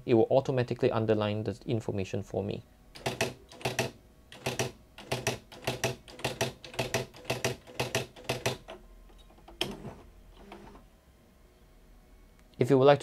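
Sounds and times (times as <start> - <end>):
typewriter strikes: 3.0 - 8.7.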